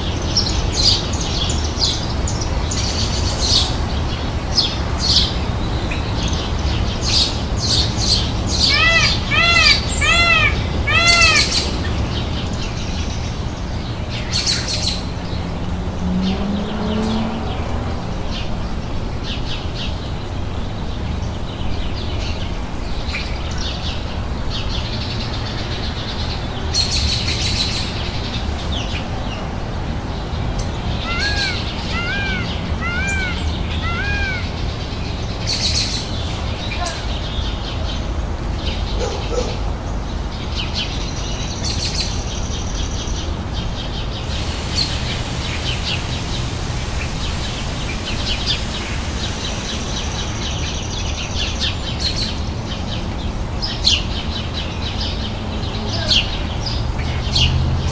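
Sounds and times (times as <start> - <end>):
birds chirping: 0.3 - 14.0, 30.6 - 37.3, 43.8 - 53.8
rising and falling bird calls: 8.0 - 11.8, 30.7 - 35.0.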